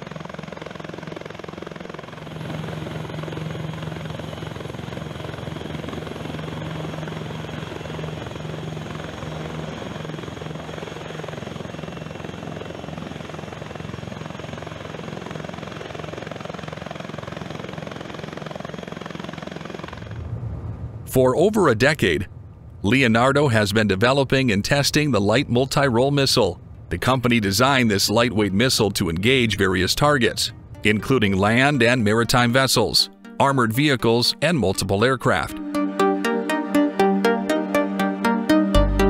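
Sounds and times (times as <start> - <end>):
helicopter rotor thrum: 0.0 - 21.2, 22.0 - 32.2.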